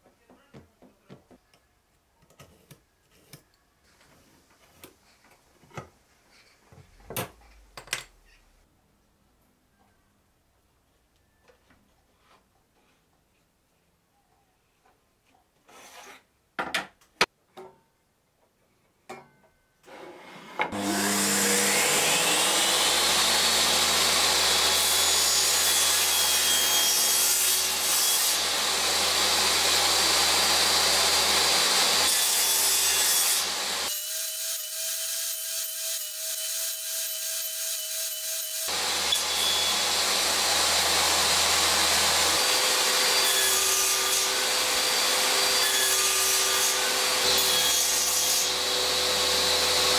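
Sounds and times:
table saw cutting wood: 19.9s - 49.9s.

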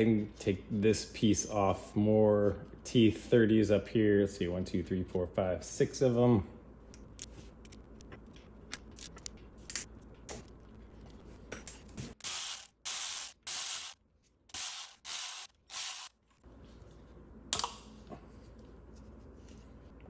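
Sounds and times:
ratchet clicking: 12.2s - 16.1s.

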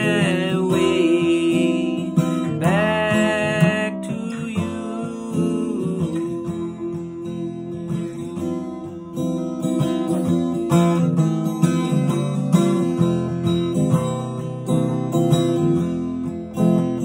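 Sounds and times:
man singing: 0.0s - 8.4s
strummed acoustic guitar: 0.0s - 17.0s.

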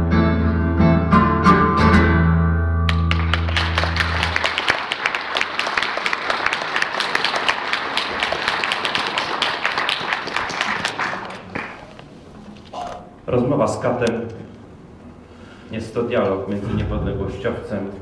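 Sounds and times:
audience applauding: 2.9s - 12.1s.

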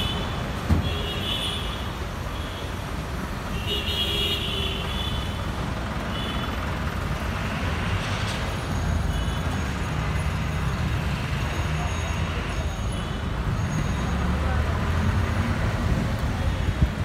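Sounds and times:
traffic engine rumble: 0.0s - 17.0s
vehicle horns: 3.5s - 5.4s.

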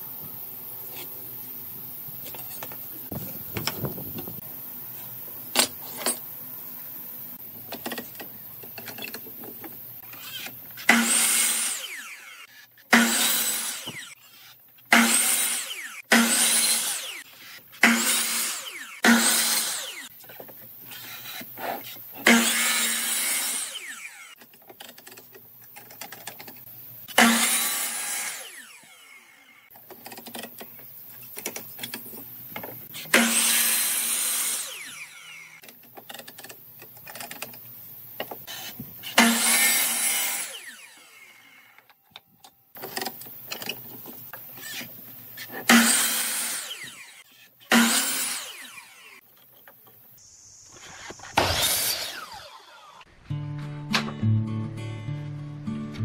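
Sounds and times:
miter saw cutting wood: 10.0s - 20.1s, 20.8s - 24.4s, 27.1s - 29.7s, 32.9s - 35.6s, 38.5s - 41.9s, 44.5s - 49.3s, 50.2s - 53.2s.

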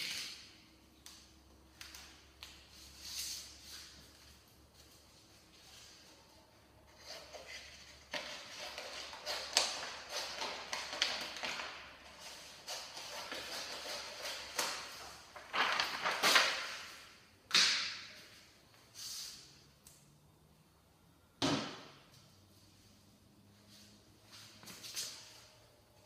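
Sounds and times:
paper backing rustling and crinkling: 7.0s - 17.0s.

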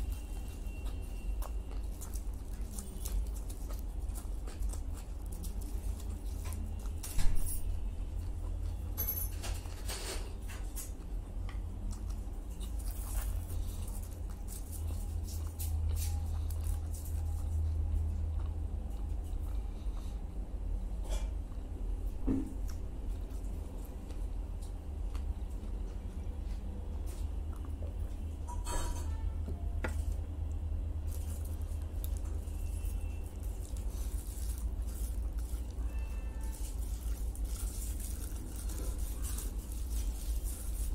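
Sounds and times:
aluminium foil crinkling: 0.0s - 11.0s, 11.8s - 18.1s, 30.9s - 40.9s
man chewing food: 0.0s - 40.9s
steady low hum: 10.3s - 40.9s.

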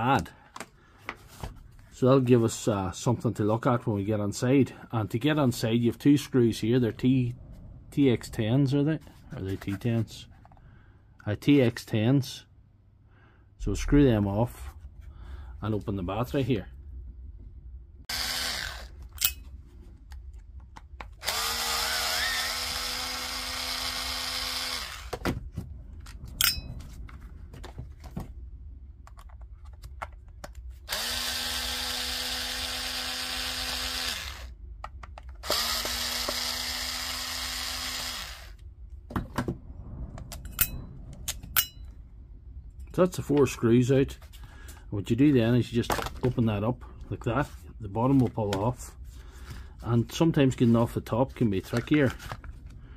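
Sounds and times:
electric screwdriver running: 18.1s - 18.9s, 21.2s - 25.2s, 30.9s - 34.5s, 35.4s - 38.6s.

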